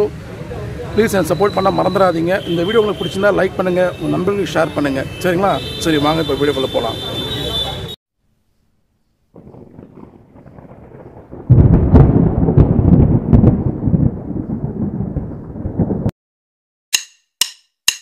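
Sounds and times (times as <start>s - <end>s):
deep thunder-like rumble: 9.4s - 16.1s.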